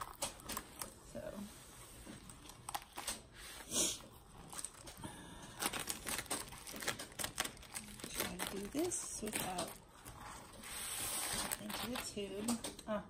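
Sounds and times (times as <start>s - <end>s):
plastic crinkling and clicking: 0.0s - 1.0s, 2.0s - 3.3s, 4.2s - 10.6s, 11.3s - 13.0s
plastic mailer ripping: 4.4s - 12.7s.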